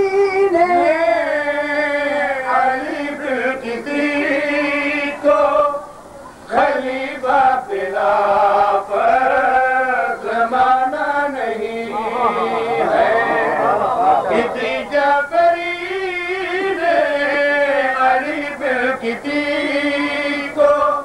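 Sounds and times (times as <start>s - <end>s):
man chanting devotional poem: 0.0s - 21.0s.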